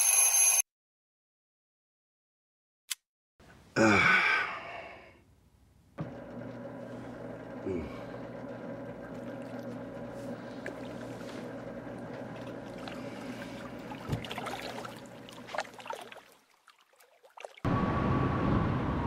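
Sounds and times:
aquarium filter humming: 6.0s - 16.1s
water trickling: 10.6s - 17.7s
turtles splashing: 12.0s - 17.7s.

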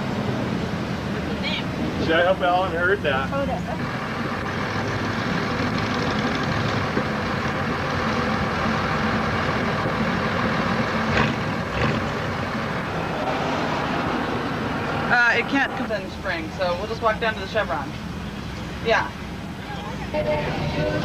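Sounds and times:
car engine idling: 0.0s - 21.0s.

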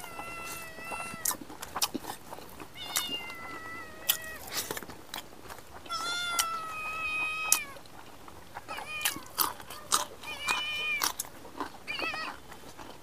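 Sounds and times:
cat meowing: 0.0s - 1.4s, 2.7s - 4.5s, 5.9s - 7.8s, 8.7s - 11.1s, 11.9s - 12.4s
person chewing food: 0.0s - 13.0s.

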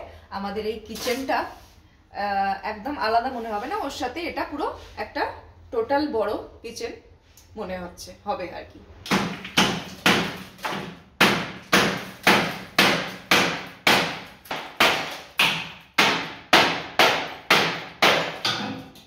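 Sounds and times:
hammer striking door frame: 9.1s - 19.0s.

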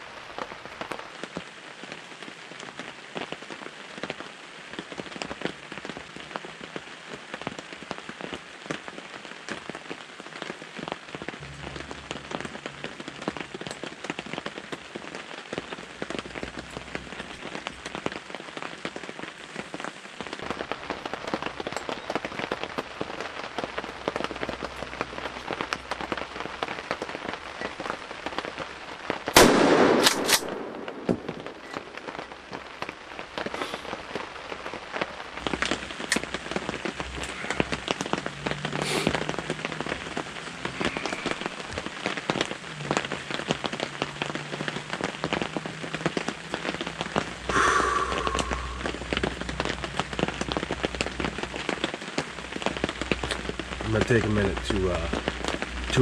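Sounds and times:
steady rain falling: 0.0s - 56.0s
loud shotgun blast: 29.4s - 31.6s.

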